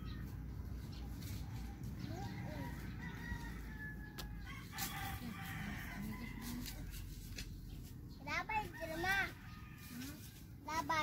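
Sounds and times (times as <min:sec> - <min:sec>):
rooster crowing: 0:02.5 - 0:06.8.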